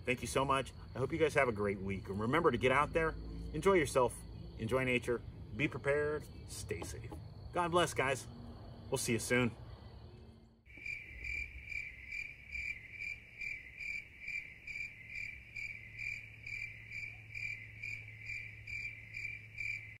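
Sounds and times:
steady low hum: 0.0s - 14.1s
crickets chirping: 0.0s - 20.0s.

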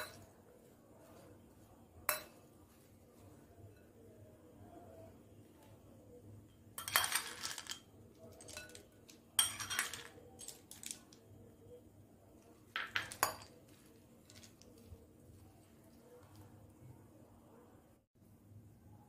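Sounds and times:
cutlery clinking against bowls: 0.0s - 0.3s, 2.0s - 2.9s, 6.5s - 11.2s, 12.7s - 14.9s.

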